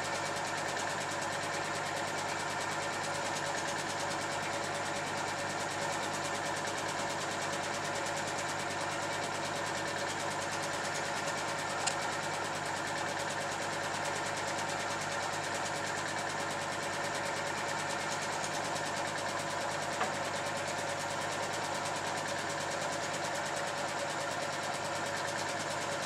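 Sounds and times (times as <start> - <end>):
film projector whirring: 0.0 - 26.0
sharp click: 11.8 - 12.0.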